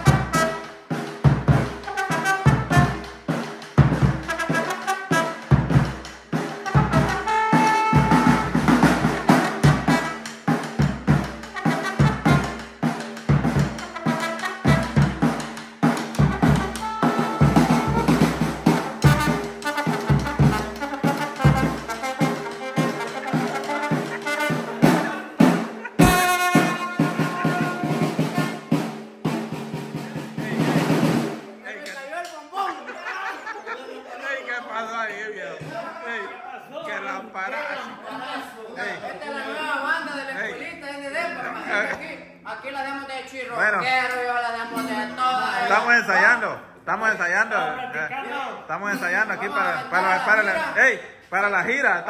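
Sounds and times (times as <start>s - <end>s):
trombone: 0.0s - 29.4s
bass drum: 0.0s - 31.5s
small sticked drum: 0.0s - 31.5s
percussion beat: 0.0s - 34.0s, 35.1s - 36.2s
live band playing upbeat tune: 0.0s - 34.1s
trombone held note: 25.9s - 28.7s
strummed guitar: 44.1s - 45.8s.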